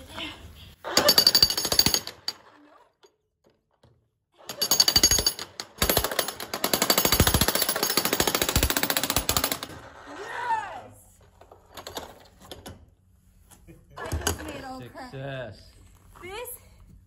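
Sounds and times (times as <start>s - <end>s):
jackhammer breaking concrete: 0.9s - 2.6s, 4.4s - 10.0s.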